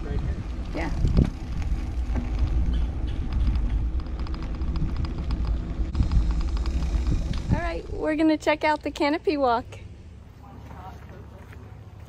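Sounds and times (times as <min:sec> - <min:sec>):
bicycle tyre rumble on road: 0:00.0 - 0:08.6
wind buffeting microphone: 0:00.0 - 0:08.8
fast even ticking: 0:02.7 - 0:08.8.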